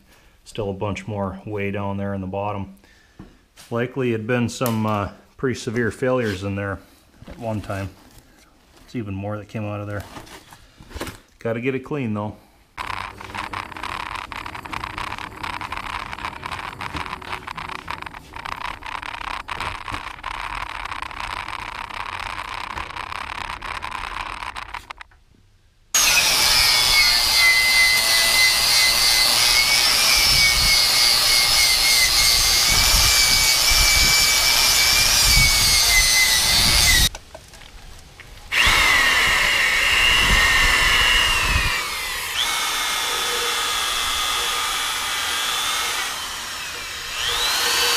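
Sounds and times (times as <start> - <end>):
angle grinder with wire wheel: 12.8 - 25.0, 26.0 - 37.1, 38.5 - 47.9
scratchy wire brushing: 12.8 - 25.0
wire brush on a drill: 12.8 - 25.1, 26.0 - 37.1, 38.5 - 47.9.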